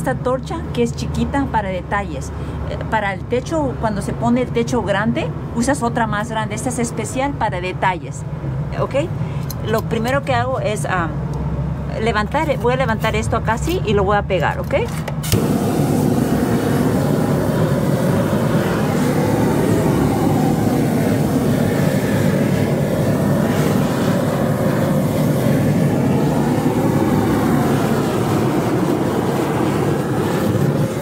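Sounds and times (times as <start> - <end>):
propane torch rushing: 15.0 - 31.0.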